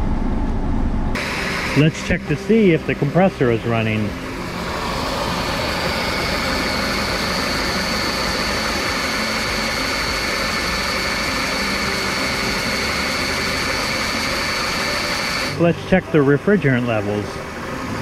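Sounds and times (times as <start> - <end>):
car engine idling: 0.0 - 18.0
steady high whine: 0.0 - 18.0.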